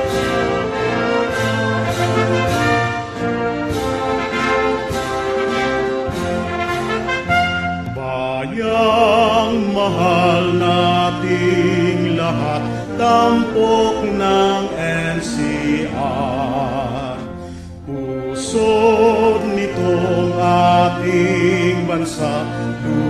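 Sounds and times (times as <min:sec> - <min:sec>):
instrumental accompaniment: 0:00.0 - 0:23.0
hymn singing with vibrato: 0:07.3 - 0:23.0.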